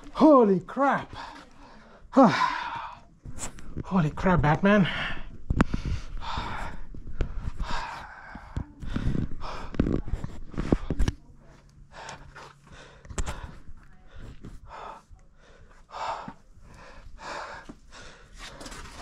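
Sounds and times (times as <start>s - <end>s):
person breathing hard: 4.8s - 11.1s, 11.8s - 19.0s.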